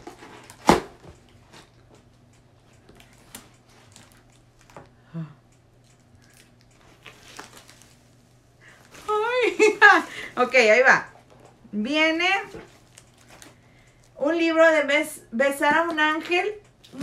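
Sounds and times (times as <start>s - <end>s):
tissue paper and cardboard rustling: 8.7s - 11.1s.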